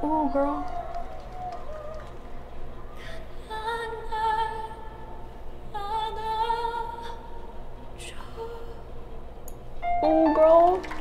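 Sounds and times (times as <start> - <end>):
woman singing a ballad: 3.0 - 5.0, 5.7 - 7.4, 8.0 - 8.9.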